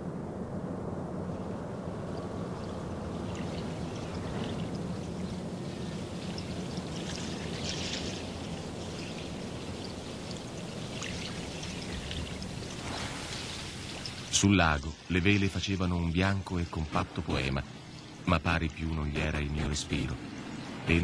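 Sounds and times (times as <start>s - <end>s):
lake water lapping on shore: 2.8s - 14.5s.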